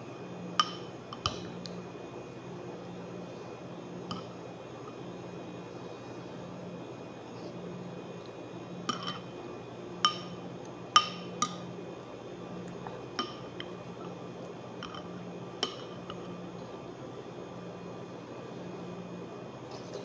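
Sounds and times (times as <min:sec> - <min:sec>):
steady low hum: 0:00.0 - 0:20.0
metal spoon clinking ceramic bowl: 0:08.9 - 0:09.3, 0:10.0 - 0:10.4, 0:11.0 - 0:11.6.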